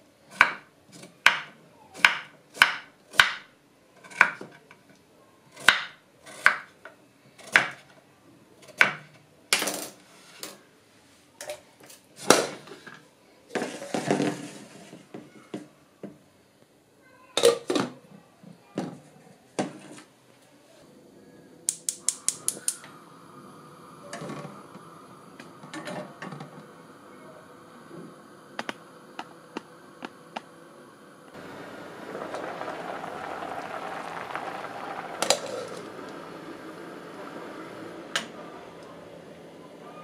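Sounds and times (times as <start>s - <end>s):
knife chopping on wooden board: 1.3s - 3.5s
gas burner hissing: 20.8s - 40.0s
gas stove igniter clicking: 21.7s - 23.1s, 28.5s - 30.5s.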